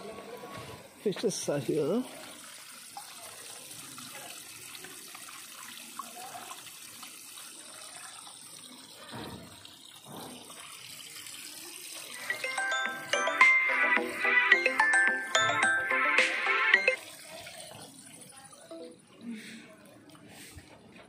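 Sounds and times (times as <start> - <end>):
music: 12.3 - 17.0.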